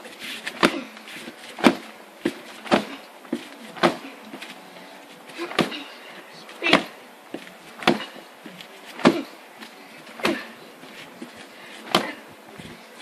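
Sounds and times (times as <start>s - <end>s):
fists punching padded shield: 5.4s - 5.8s, 7.8s - 8.2s, 11.9s - 12.2s.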